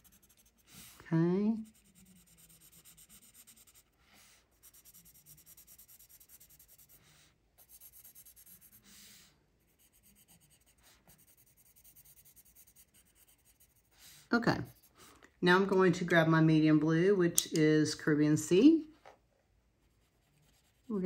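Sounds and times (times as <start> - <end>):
colored pencil scratching paper: 0.0 - 15.2, 19.8 - 21.0.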